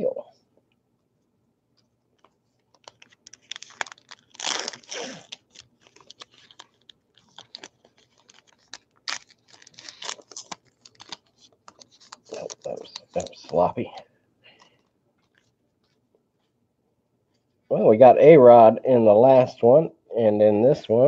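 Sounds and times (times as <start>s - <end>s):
wrapper crinkling and tearing: 2.6s - 13.8s.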